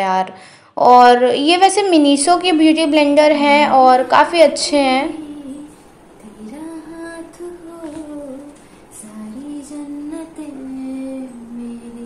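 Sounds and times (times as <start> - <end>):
woman singing slow song: 2.4 - 12.0.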